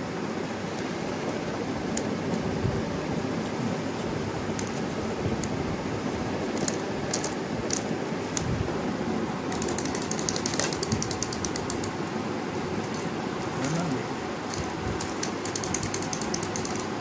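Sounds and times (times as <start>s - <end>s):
steady background hum: 0.0s - 17.0s
rapid ratcheting clicks: 6.6s - 8.5s, 9.5s - 12.0s, 14.5s - 17.0s
wind-up toy key clicks: 6.6s - 8.5s, 9.5s - 12.0s, 14.5s - 17.0s.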